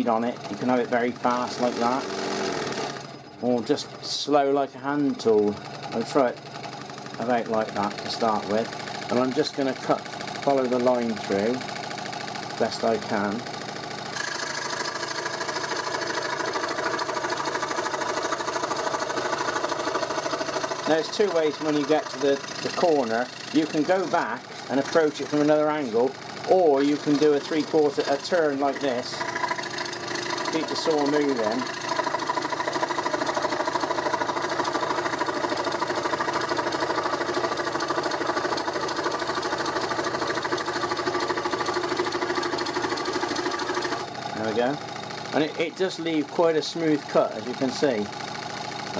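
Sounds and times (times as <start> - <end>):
scroll saw cutting wood: 0.0 - 48.9.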